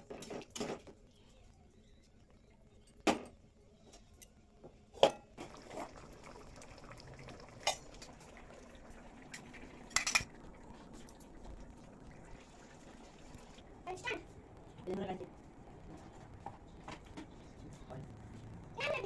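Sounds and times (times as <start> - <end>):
steel container being handled: 9.2 - 10.6.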